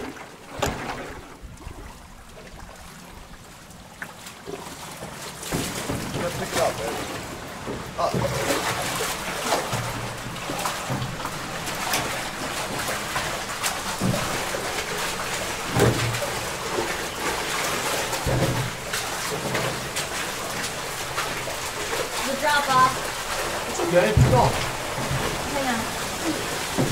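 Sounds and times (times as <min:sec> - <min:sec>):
shallow water splashing and trickling: 0:00.0 - 0:26.9
low thumps: 0:00.5 - 0:02.0.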